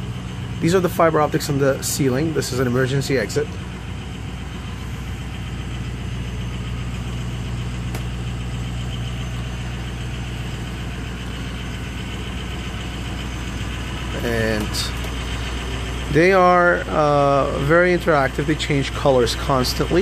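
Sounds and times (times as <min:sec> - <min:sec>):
bus engine idling: 0:00.0 - 0:20.0.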